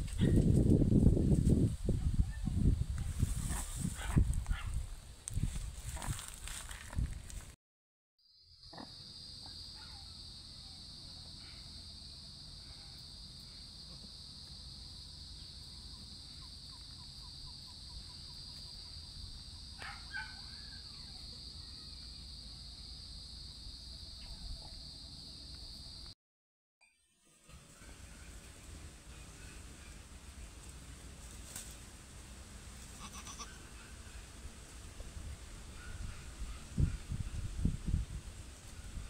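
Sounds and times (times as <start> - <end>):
insects droning: 8.2 - 26.2.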